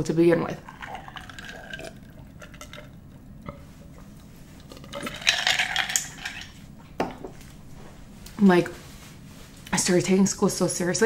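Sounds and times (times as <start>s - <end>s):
person swallowing drink: 0.6s - 6.1s.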